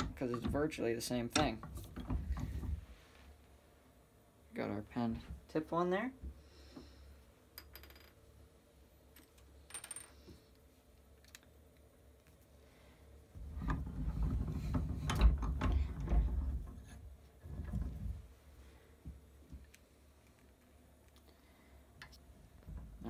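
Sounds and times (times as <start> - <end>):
rustling and knocking: 0.0 - 3.3, 13.4 - 19.7.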